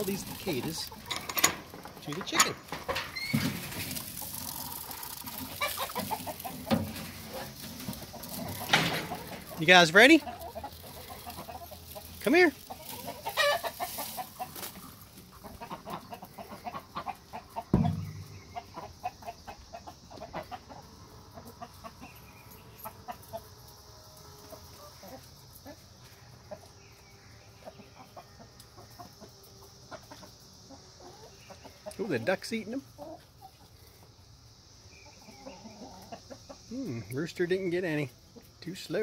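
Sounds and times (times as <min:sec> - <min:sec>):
chickens clucking softly: 0:04.4 - 0:23.6, 0:24.4 - 0:39.0
loud thump: 0:17.8 - 0:18.3.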